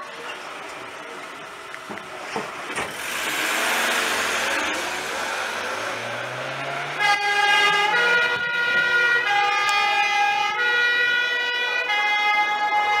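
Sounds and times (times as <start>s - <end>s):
van engine revving: 0.4s - 9.1s
two-tone siren: 5.5s - 13.0s.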